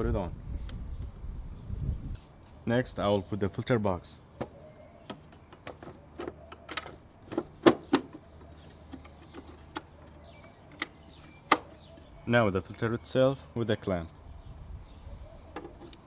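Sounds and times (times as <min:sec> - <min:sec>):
hard plastic clicks and knocks: 0:04.4 - 0:08.2, 0:08.9 - 0:11.9.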